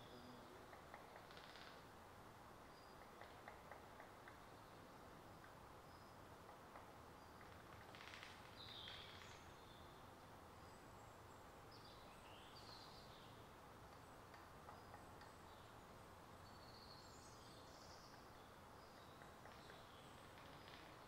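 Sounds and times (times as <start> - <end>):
distant small birds chirping: 0.0 - 21.0
low steady hiss: 0.0 - 21.0.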